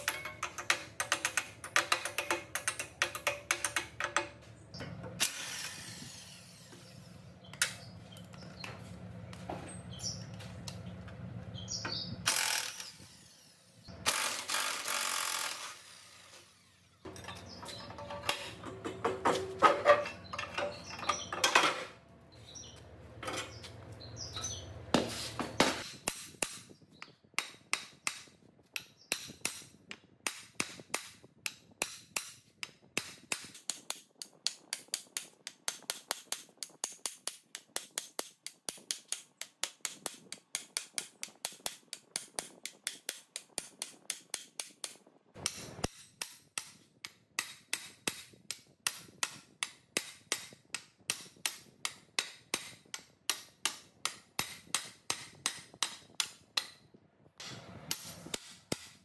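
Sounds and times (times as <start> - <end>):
sharp taps on metal: 0.0 - 5.0
machine humming and clattering: 0.0 - 5.4, 17.1 - 22.0.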